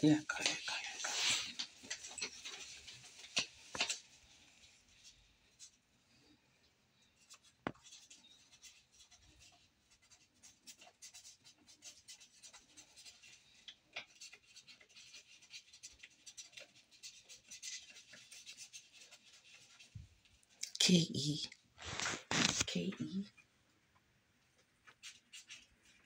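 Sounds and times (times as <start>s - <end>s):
faint scratching: 0.2s - 20.4s, 21.8s - 23.4s.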